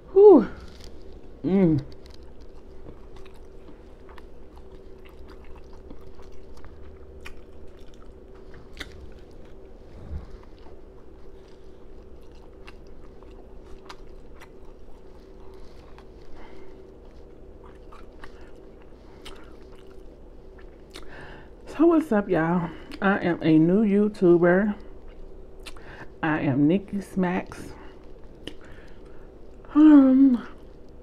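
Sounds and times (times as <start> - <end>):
person chewing with lip smacking: 0.6 - 21.6, 24.8 - 26.1, 27.8 - 29.7.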